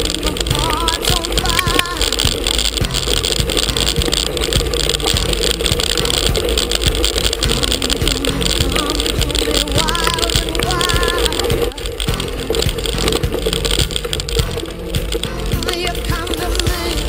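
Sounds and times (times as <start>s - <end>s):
knocks from bumps: 0.0s - 16.9s
faint background music: 0.0s - 17.0s.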